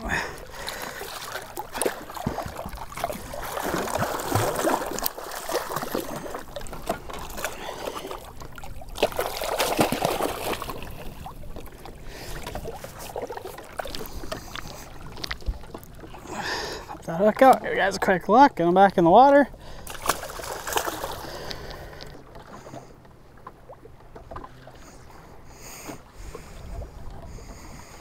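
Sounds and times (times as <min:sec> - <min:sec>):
water splashing against boat: 0:00.0 - 0:28.0
fish thrashing at surface: 0:09.0 - 0:11.0, 0:19.9 - 0:21.7.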